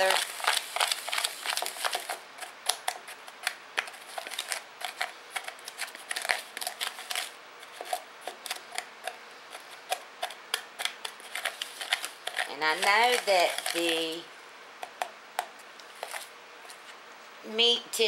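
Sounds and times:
utensil scraping plastic bowl: 3.4s - 14.2s.

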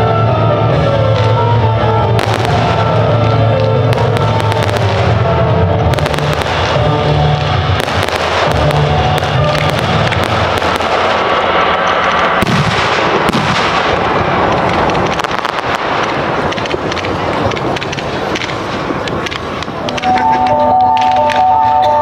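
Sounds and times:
firework fountains hissing: 0.0s - 22.0s
firework crackles and pops: 1.0s - 21.8s.

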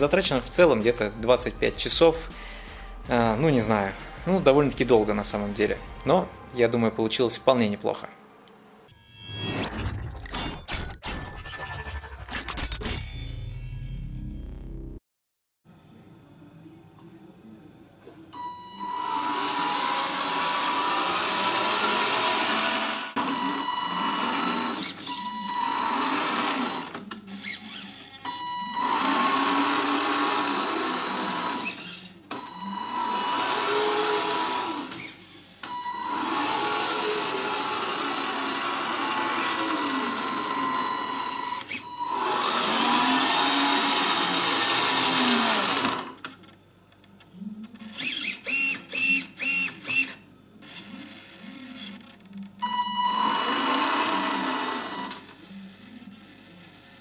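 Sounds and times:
toy truck electric motor whining: 18.8s - 46.3s, 47.8s - 52.0s, 52.6s - 57.0s.

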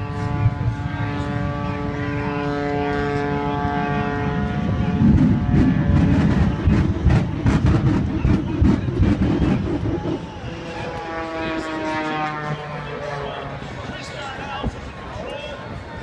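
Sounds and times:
propeller airplane engine droning: 0.0s - 16.0s
rough low rumble with crackling: 2.6s - 11.8s.

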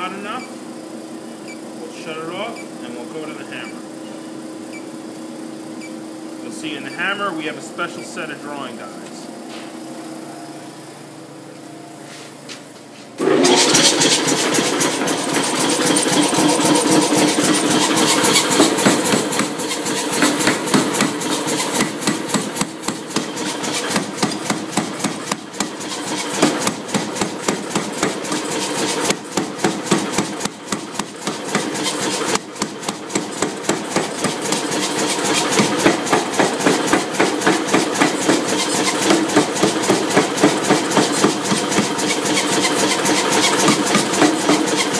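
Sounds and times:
power hammer motor humming: 13.2s - 44.9s.

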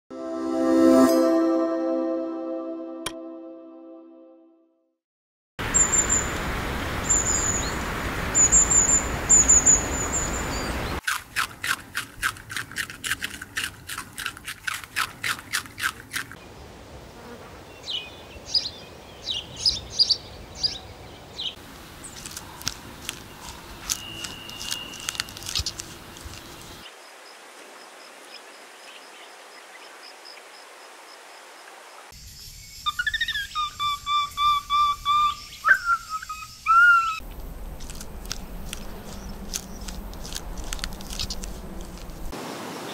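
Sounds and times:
high animal chirps: 32.9s - 37.2s
monkey whistled calls: 32.9s - 37.2s.

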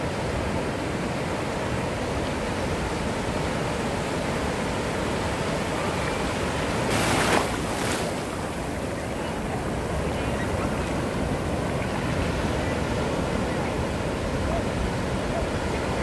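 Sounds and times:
ocean surf rushing: 0.0s - 16.0s
wave crashing: 6.7s - 8.8s.

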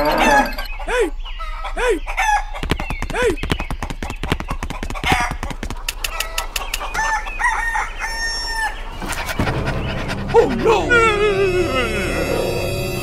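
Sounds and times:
chickens clucking: 0.0s - 11.0s
quick clicks: 2.6s - 7.0s
rooster crowing: 7.0s - 8.8s.

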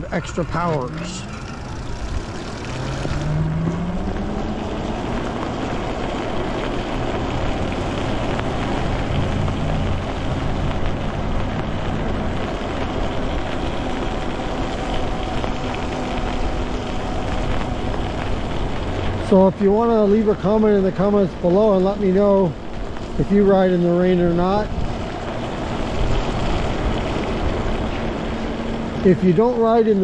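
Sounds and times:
electric bike motor whining: 0.0s - 19.3s
tyres swishing on wet pavement: 0.0s - 30.0s.

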